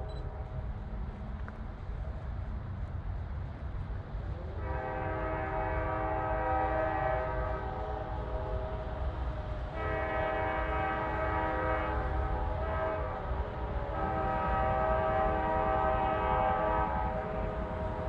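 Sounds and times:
locomotive air horn chord: 4.6 - 8.6, 9.8 - 18.0.

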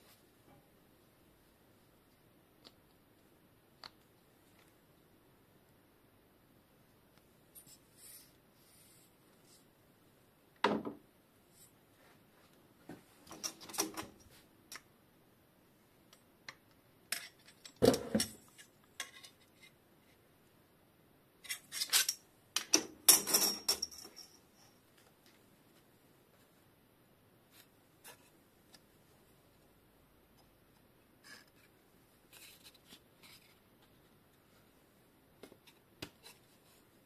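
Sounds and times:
light metallic clinks and rubbing: 23.1 - 24.8.

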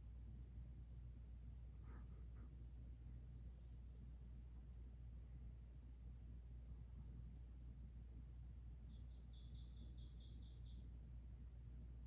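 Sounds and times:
faint bird song through tv: 0.5 - 4.1, 8.4 - 10.9.

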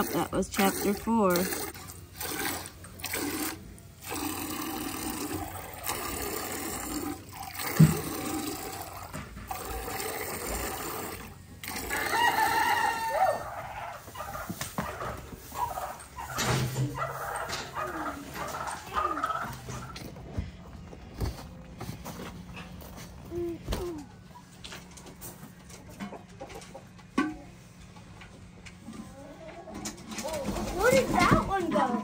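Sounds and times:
milk squirting into metal pail: 0.0 - 12.6
rooster crowing: 11.8 - 14.0.

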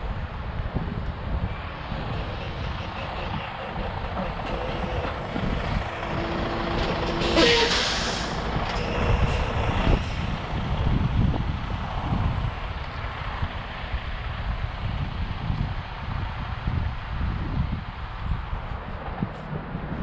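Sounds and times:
wind buffeting microphone: 0.0 - 20.0
loud hiss of air: 7.2 - 10.2.

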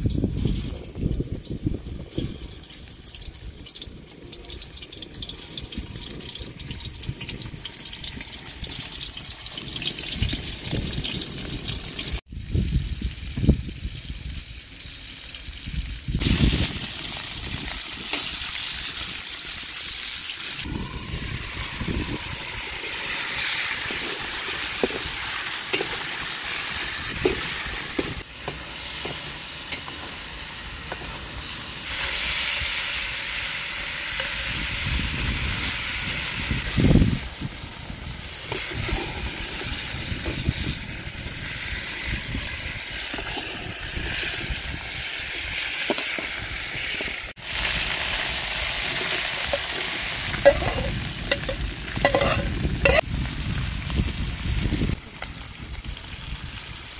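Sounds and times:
meatballs sizzling in oil: 0.0 - 56.9
metal ladle scraping a pan: 21.1 - 30.1, 48.8 - 53.0.

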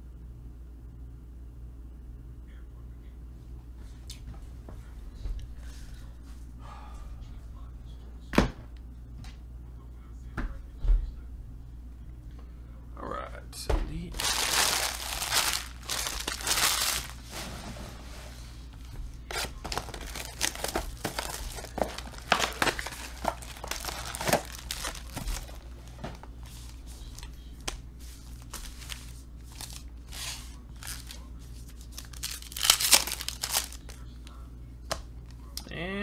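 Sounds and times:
foil wrappers crinkling: 14.1 - 17.4, 19.2 - 34.0
foil pack tearing open: 14.2 - 17.2, 19.3 - 25.7, 28.5 - 34.0.

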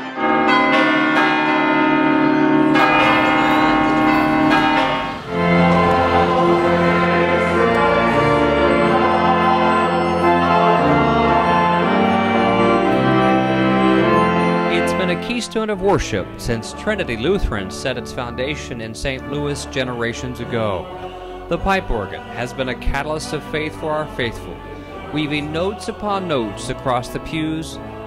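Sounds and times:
bell-like struck notes: 0.0 - 11.2
organ playing chords: 0.0 - 28.0.

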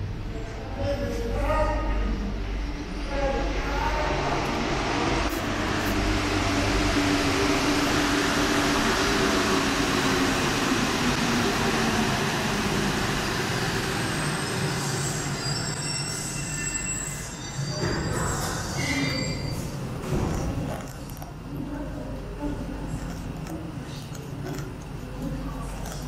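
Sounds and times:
train braking to a stop: 2.4 - 20.1
high brake squeals: 14.0 - 19.9.

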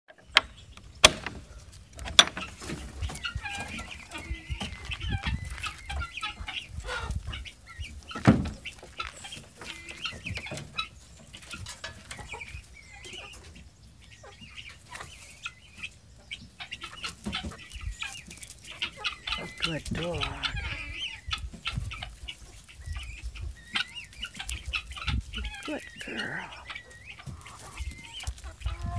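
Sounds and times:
chickens clucking: 0.1 - 28.9.

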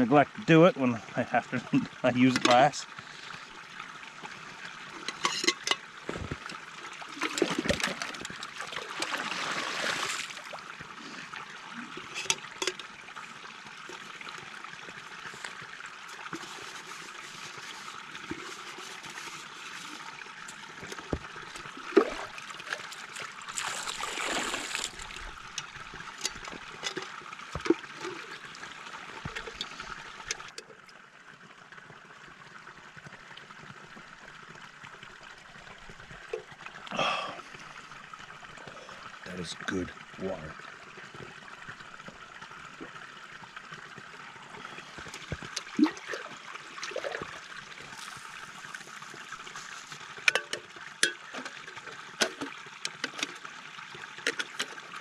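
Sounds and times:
stream trickling: 0.0 - 55.0
water splashing into metal pot: 5.0 - 10.5, 20.7 - 28.4, 45.3 - 49.4, 50.2 - 53.4.

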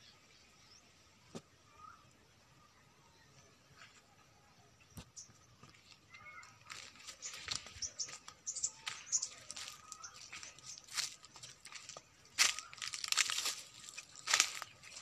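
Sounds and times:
dry grass rustling and crunching: 5.6 - 15.0.

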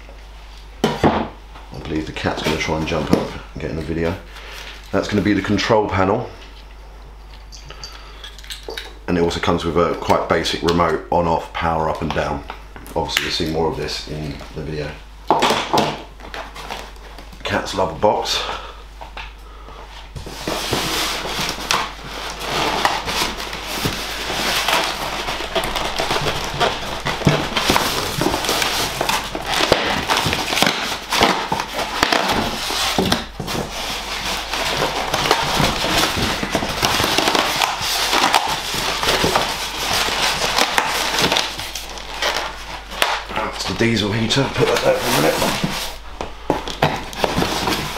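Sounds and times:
cardboard and foam crackling: 20.1 - 47.9.

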